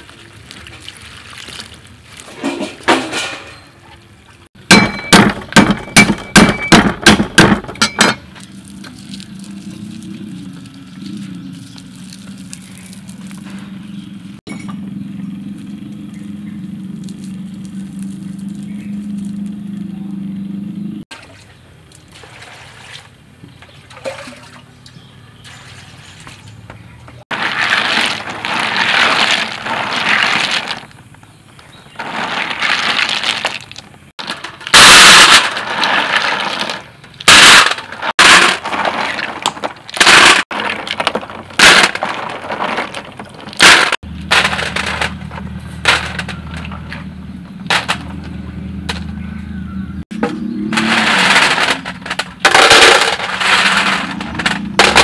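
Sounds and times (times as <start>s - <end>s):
water splashing in basin: 0.0s - 2.4s, 21.1s - 26.4s
shells clattering on metal tray: 50.7s - 55.0s.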